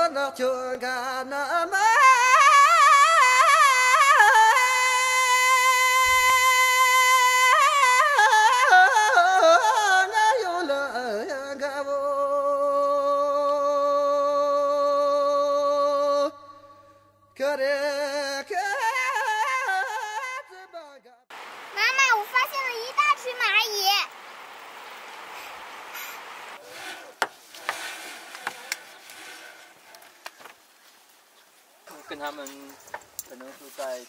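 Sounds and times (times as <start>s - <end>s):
solo voice singing: 0.0s - 21.2s.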